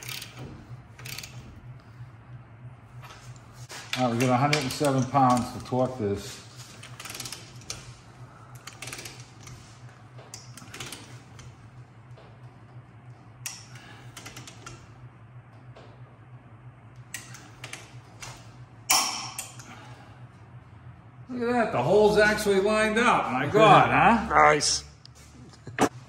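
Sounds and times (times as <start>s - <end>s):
torque wrench ratchet clicking: 0.0s - 0.4s, 1.0s - 1.4s, 7.0s - 7.8s
steady low hum: 0.0s - 26.0s.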